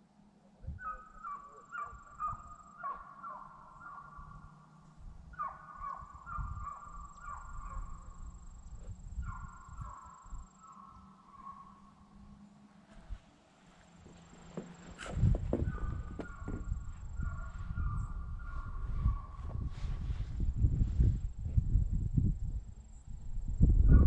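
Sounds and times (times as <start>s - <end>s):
animals calling: 0.6s - 12.7s, 13.8s - 19.7s
low rumble on microphone: 4.1s - 11.0s, 14.0s - 24.0s.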